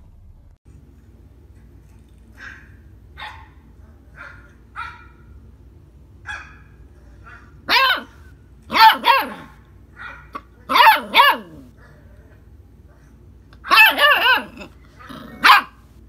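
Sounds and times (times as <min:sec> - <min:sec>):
dog barking: 0:02.4 - 0:05.4, 0:06.2 - 0:11.7, 0:13.6 - 0:15.8.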